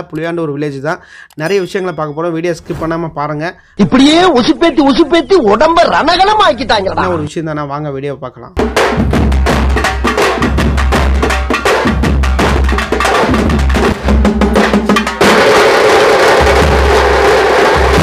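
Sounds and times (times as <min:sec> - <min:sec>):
drum band playing: 0:08.6 - 0:18.0.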